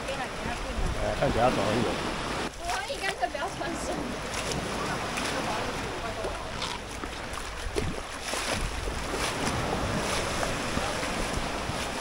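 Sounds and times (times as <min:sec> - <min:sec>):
wind noise on microphone: 0:00.0 - 0:02.5, 0:07.4 - 0:12.0
surf washing: 0:00.0 - 0:12.0
footsteps splashing in shallow water: 0:02.2 - 0:12.0.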